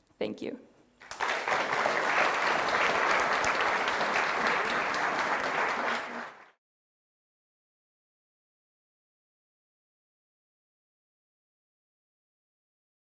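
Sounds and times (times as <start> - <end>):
audience applauding: 1.0 - 6.6.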